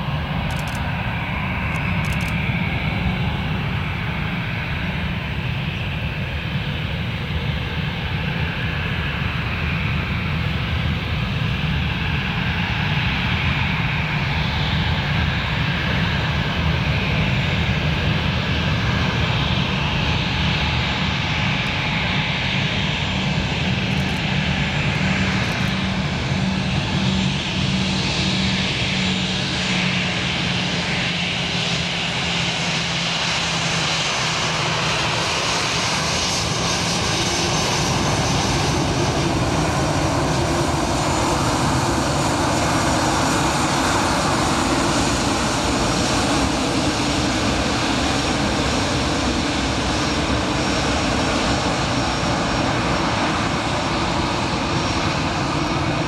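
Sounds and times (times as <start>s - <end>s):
jet engine hum: 0.0s - 56.0s.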